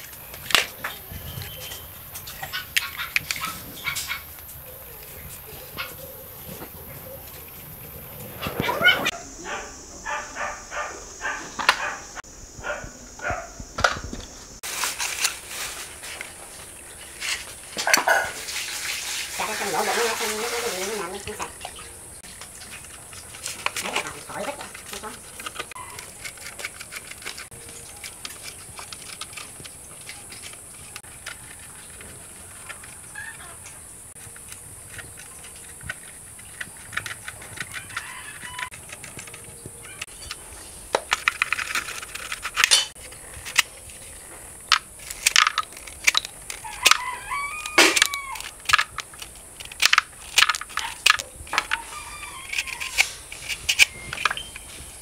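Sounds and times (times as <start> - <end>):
bird calls: 0.0 - 13.5, 27.3 - 41.0
metal rifle parts clicking and knocking: 22.4 - 54.8.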